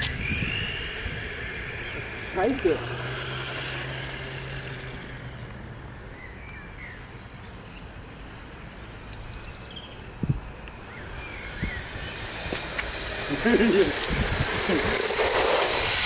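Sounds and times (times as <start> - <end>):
bird chirps: 6.1 - 12.4.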